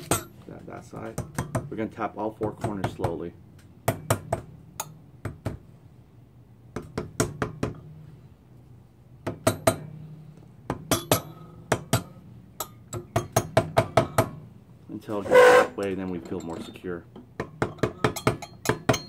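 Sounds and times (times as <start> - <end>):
mallet tapping metal cylinder: 17.4 - 19.0.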